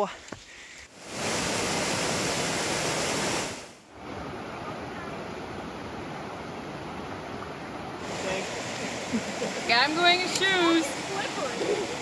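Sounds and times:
river running over rocks: 0.9s - 12.0s
water rushing down rocky cascade: 1.0s - 5.4s, 8.0s - 12.0s.

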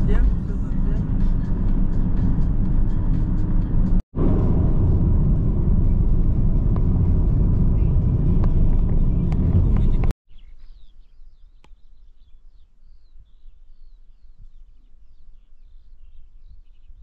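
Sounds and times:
car driving rumble: 0.0s - 10.2s.

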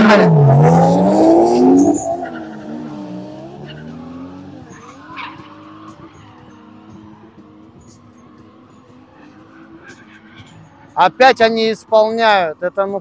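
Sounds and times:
car engines revving hard: 0.0s - 11.0s
tyre squeal: 0.9s - 4.0s, 4.7s - 6.4s.

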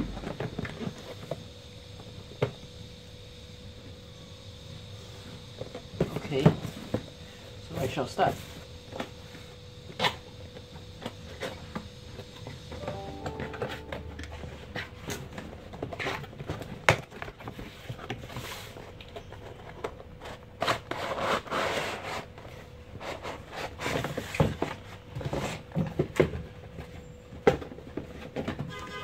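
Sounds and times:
rustling and scraping of cardboard: 19.4s - 26.1s.

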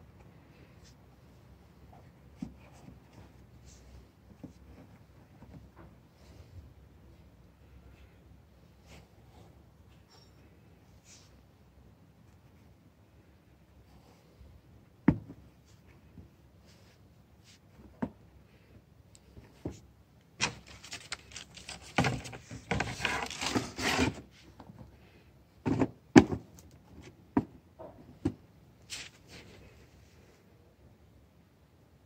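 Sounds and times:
tissue paper rustling: 20.4s - 24.2s.

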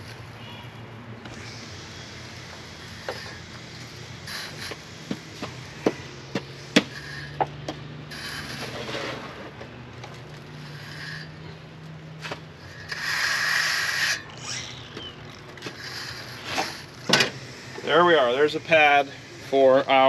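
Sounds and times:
trowel scraping across gravel: 8.1s - 11.4s, 12.2s - 14.6s, 15.6s - 17.1s.

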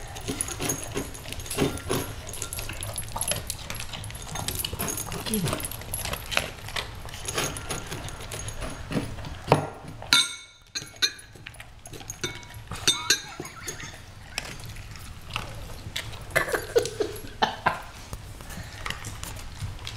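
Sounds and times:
dogs knocking food bowl: 0.0s - 14.6s
collar tags jingling: 0.0s - 17.6s.

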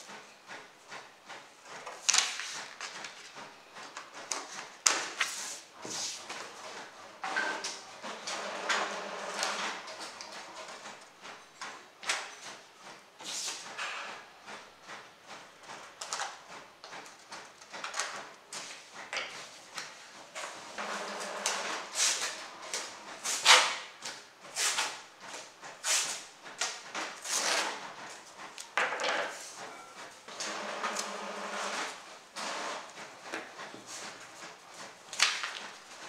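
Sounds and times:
paper being handled: 1.8s - 3.4s, 4.5s - 6.4s.

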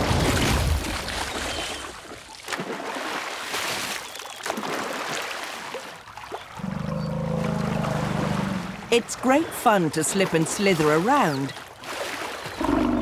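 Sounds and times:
mud splattering and squelching: 0.0s - 8.7s.

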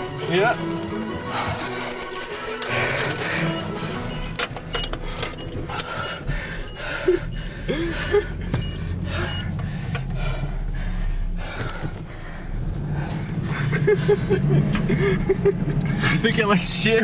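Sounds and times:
low steady hum: 2.8s - 16.1s.

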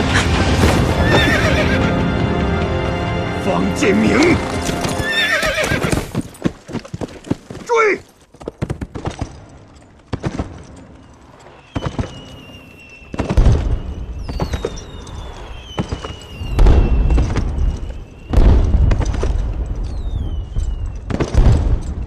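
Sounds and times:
firework whistles falling in pitch: 11.6s - 18.8s
firework booms: 13.0s - 22.0s.

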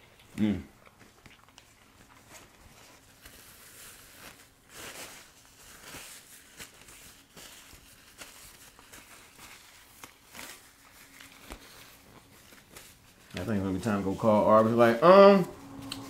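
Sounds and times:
soft chewing: 0.0s - 4.4s
paper food wrappers rustling: 0.0s - 16.0s.

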